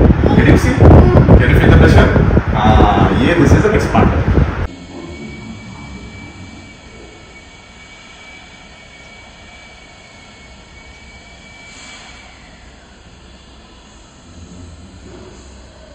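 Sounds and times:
high steady whine: 0.0 - 15.9
machinery humming: 0.0 - 15.9
brief hiss: 11.6 - 12.4.

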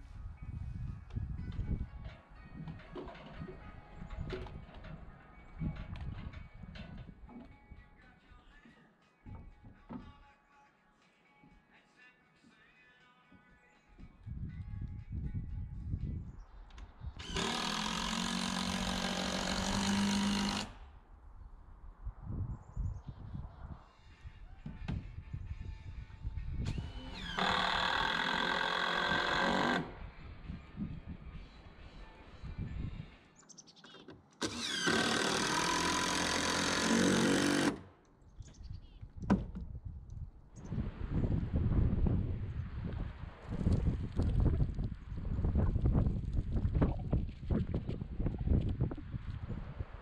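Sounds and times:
power tool running: 17.2 - 20.8, 26.7 - 29.9, 34.4 - 37.9.

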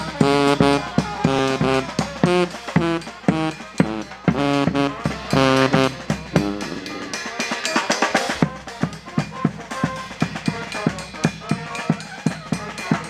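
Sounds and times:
bass drum and cymbal: 0.0 - 13.0
marching brass band playing: 0.0 - 13.0
snare drum beat: 2.2 - 10.0.

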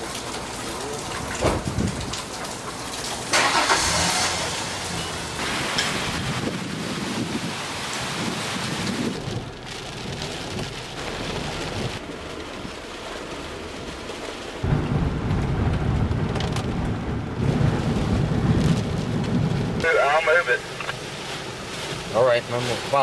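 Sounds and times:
hurricane wind and rain on microphone: 0.0 - 23.0
rain and wind battering car: 0.0 - 23.0
heavy low rumble inside car: 8.2 - 23.0.

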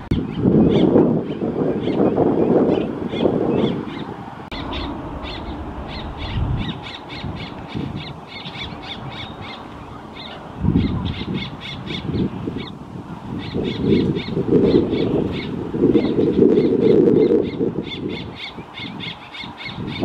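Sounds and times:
wind rumble on microphone: 0.0 - 20.0
bird fledgling begging calls: 0.1 - 20.0.

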